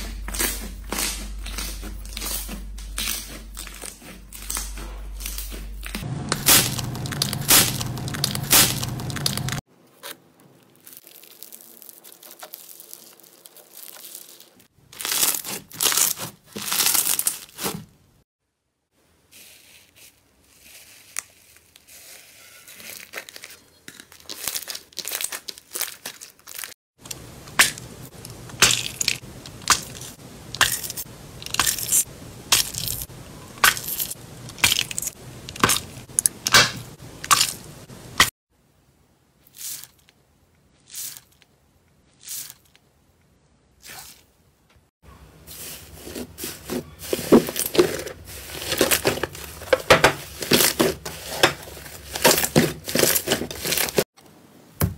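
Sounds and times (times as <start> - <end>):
slime crackling and popping: 0.2 - 9.6, 10.7 - 17.6.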